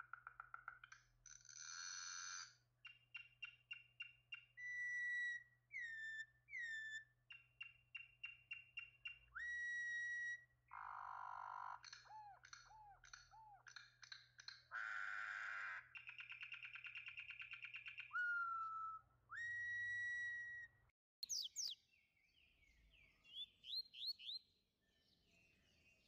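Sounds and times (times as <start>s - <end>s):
bird singing whistled notes: 2.8s - 10.9s, 16.0s - 26.0s.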